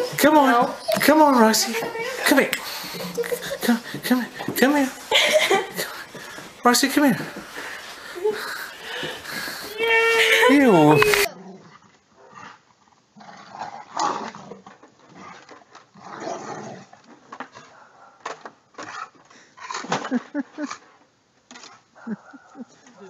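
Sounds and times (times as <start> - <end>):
dog growling and whining: 0.0 - 5.5, 7.3 - 11.8.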